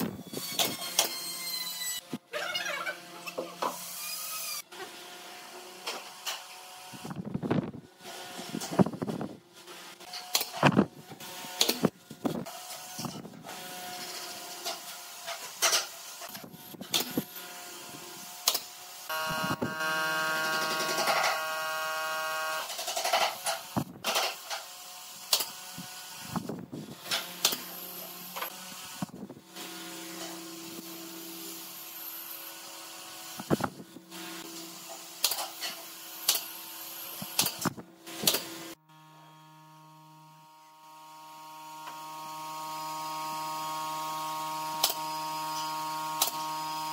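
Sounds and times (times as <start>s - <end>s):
steady multi-tone hum: 19.0s - 22.7s.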